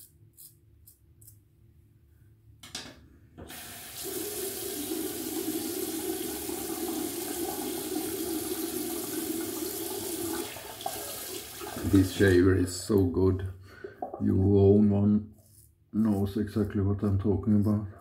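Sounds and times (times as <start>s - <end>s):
tap water running into sink: 3.4s - 12.4s.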